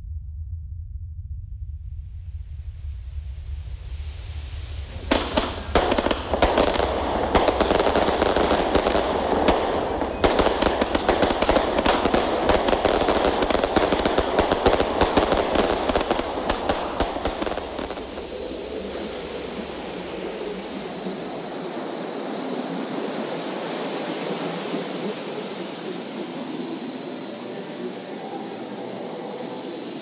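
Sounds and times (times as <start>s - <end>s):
fireworks bangs and crackles: 4.0s - 29.2s.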